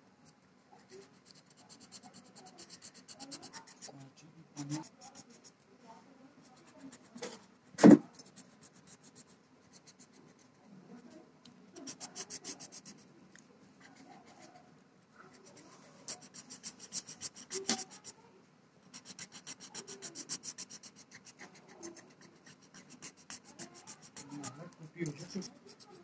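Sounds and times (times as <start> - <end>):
pen scribbling on paper: 0.9 - 4.0, 4.6 - 5.5, 6.5 - 7.4, 8.1 - 10.4, 11.8 - 13.0, 13.8 - 14.6, 15.3 - 18.2, 18.9 - 26.0
sharp knock: 7.8 - 8.1.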